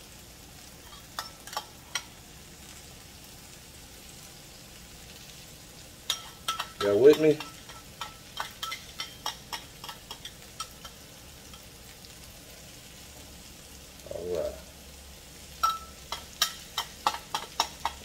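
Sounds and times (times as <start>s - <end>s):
faint steady hiss: 0.0s - 18.0s
metal utensil scraping a pan: 0.8s - 2.2s, 6.1s - 11.7s, 15.6s - 18.0s.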